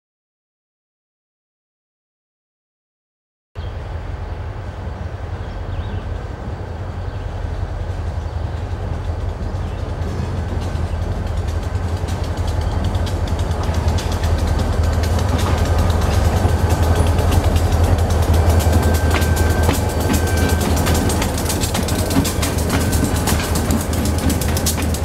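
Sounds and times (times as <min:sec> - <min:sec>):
train engine rumble: 0:03.6 - 0:25.0
rapid fine ticking: 0:07.7 - 0:25.0.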